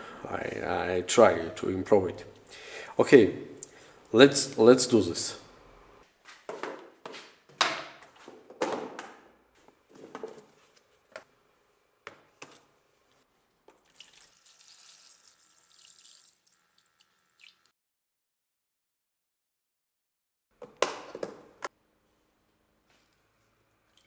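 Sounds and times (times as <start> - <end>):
liquid pouring into tub: 13.8 - 17.7.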